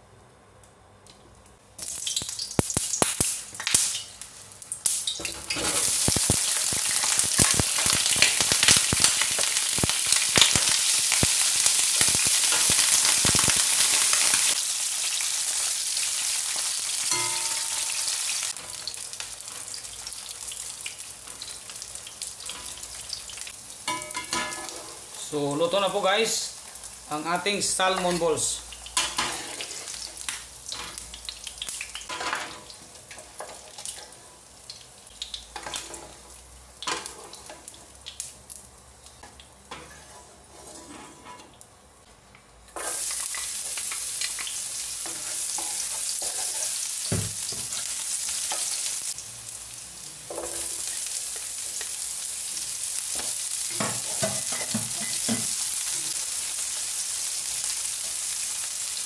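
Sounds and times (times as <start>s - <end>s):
garlic sizzling in hot oil: 1.8s - 59.0s
utensils clinking on a pan: 17.0s - 19.6s, 23.8s - 25.0s, 50.2s - 52.0s, 53.2s - 56.2s.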